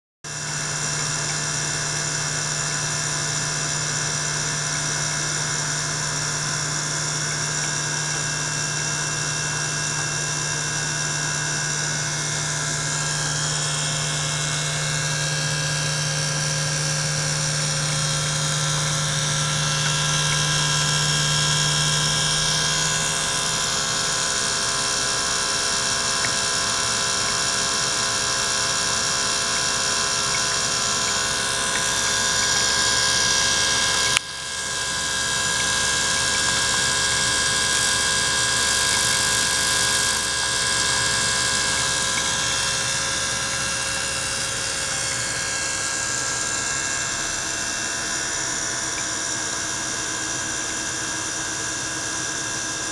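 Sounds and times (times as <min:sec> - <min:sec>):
pump whining: 0:00.3 - 0:52.9
sharp click: 0:37.6 - 0:40.4.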